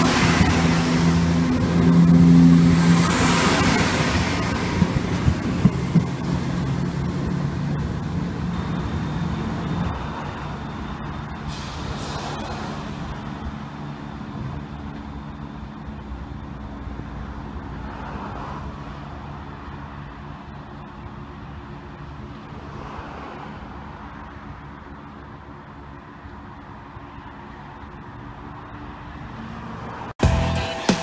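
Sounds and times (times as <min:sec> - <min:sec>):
diesel train passing: 0:00.0 - 0:31.0
sharp clacks of wheels: 0:02.7 - 0:16.0.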